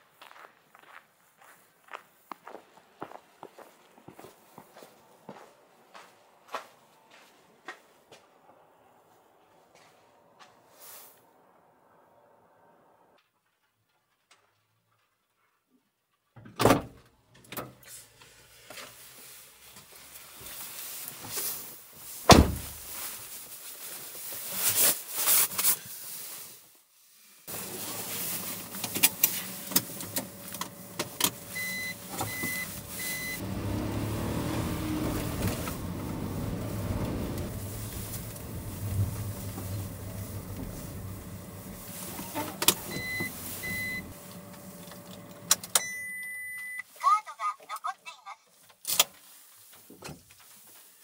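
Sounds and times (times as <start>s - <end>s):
car door thump: 22.3s - 22.8s
low rumble: 34.7s - 42.3s
click and handling noises: 44.4s - 45.9s
short high beeps: 45.8s - 46.8s.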